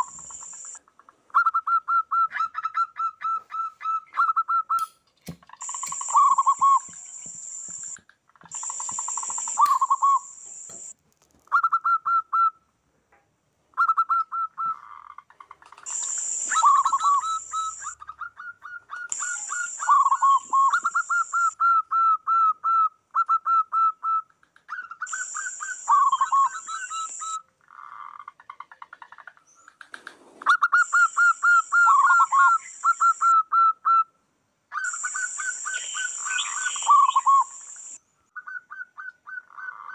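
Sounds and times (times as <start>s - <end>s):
doves cooing: 0.0s - 0.8s, 5.5s - 10.9s, 13.9s - 21.7s, 24.6s - 33.4s, 34.8s - 38.0s.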